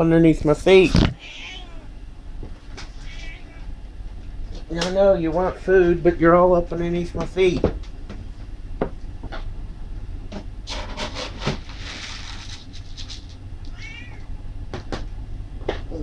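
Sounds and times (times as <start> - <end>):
cats meowing: 0.9 - 2.0, 2.8 - 3.8, 13.6 - 14.4.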